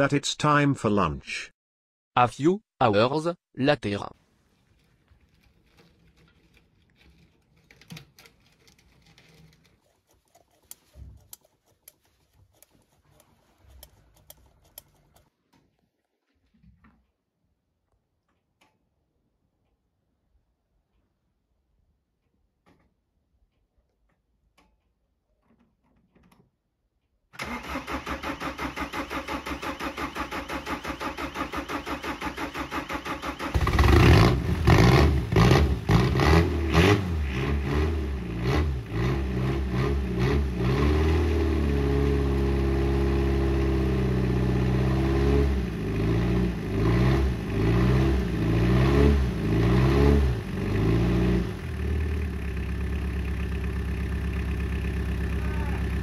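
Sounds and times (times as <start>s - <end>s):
starter motor cranking: 4.7s - 15.3s, 27.4s - 36.0s
diesel engine running roughly: 51.7s - 56.0s.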